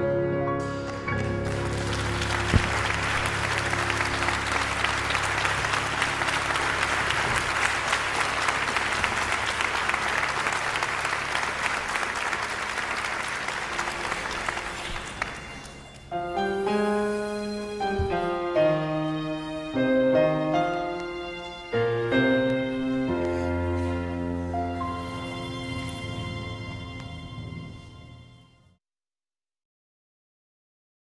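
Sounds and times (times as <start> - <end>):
soft piano music: 0.0 - 11.1, 13.5 - 28.6
congregation applauding: 0.8 - 16.6, 20.4 - 27.4
sustained keyboard chord: 15.6 - 28.4.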